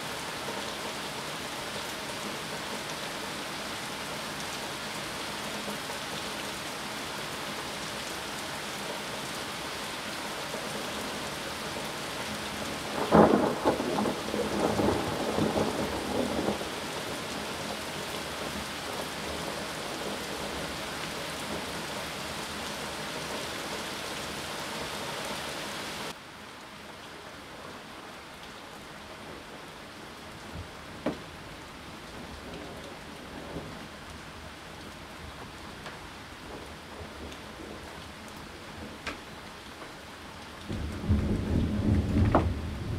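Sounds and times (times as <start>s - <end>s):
heavy rain hissing: 0.0s - 26.2s, 30.3s - 42.9s
thunder clap rumbling: 12.8s - 16.7s, 40.7s - 42.9s.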